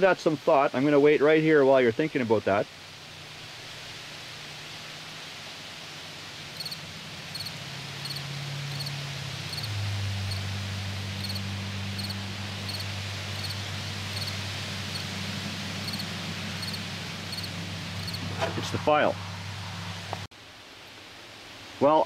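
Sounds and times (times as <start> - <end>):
steady hiss: 0.0 - 19.1, 20.1 - 22.0
low hum: 6.6 - 20.3
short high chirp: 7.4 - 8.9, 11.2 - 11.4.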